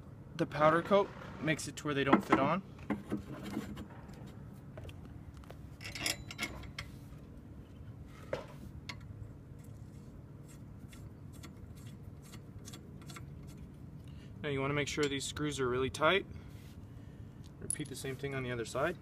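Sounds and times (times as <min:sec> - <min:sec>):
metal tubing clicks and scrapes: 0:08.8 - 0:14.2.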